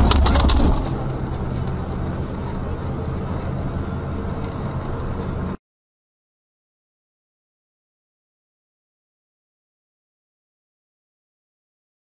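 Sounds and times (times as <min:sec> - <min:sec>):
car engine and road noise drone: 0:00.0 - 0:05.6.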